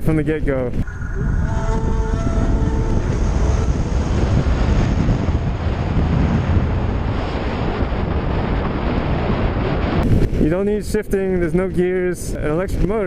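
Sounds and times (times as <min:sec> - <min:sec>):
wind rushing over microphone: 0:00.0 - 0:13.0
motorcycle tyre and road noise: 0:01.4 - 0:10.8.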